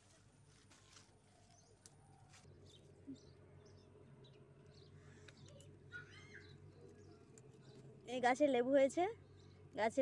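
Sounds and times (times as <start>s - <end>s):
faint bird chirps: 1.3s - 7.9s.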